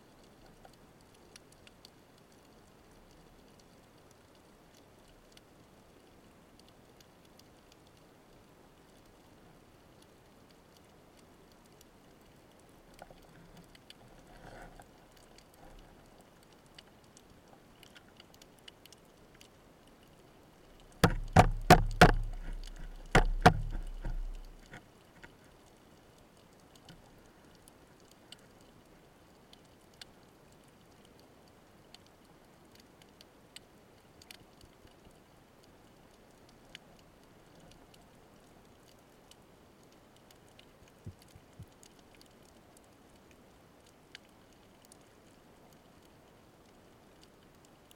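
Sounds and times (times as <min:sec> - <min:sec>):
faint crackling clicks: 0:00.0 - 0:47.9
underwater ambience: 0:00.0 - 0:47.9
loud sharp knocks: 0:21.0 - 0:22.3, 0:23.1 - 0:24.2.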